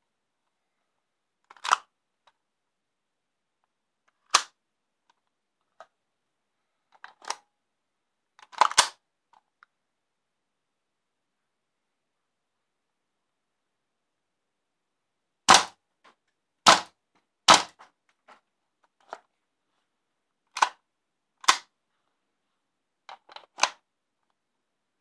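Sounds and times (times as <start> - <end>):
airsoft rifle shots: 15.5 - 15.8, 16.7 - 17.8.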